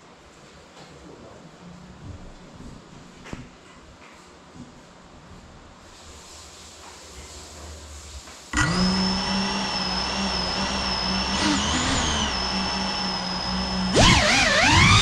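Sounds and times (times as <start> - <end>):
drone motors high whine: 8.6 - 15.0.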